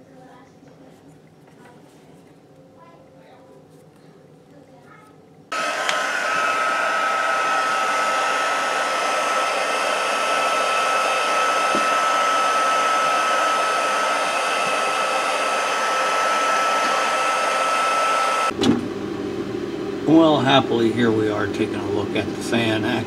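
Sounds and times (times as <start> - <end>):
heat gun blower whining: 5.5 - 23.0.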